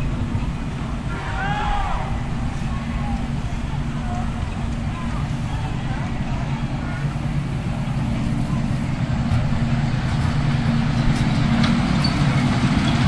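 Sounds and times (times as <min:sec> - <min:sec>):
miniature locomotive engine running: 0:00.0 - 0:13.0.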